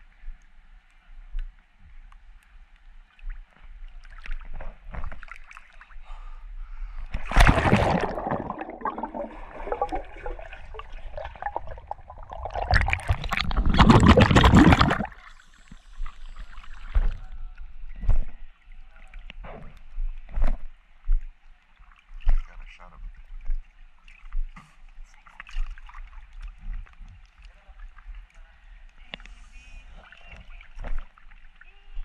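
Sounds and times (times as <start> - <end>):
pool water splashing and gurgling: 3.2 - 6.0, 7.2 - 17.2, 21.8 - 28.2.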